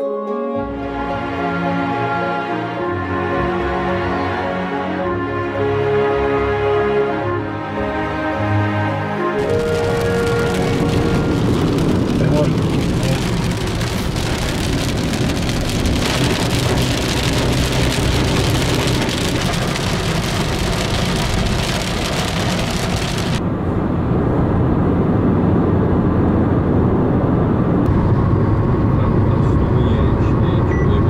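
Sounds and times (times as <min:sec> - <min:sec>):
tyres hissing on wet road: 0:09.4 - 0:23.4
car rumbling on dry road: 0:09.4 - 0:31.0.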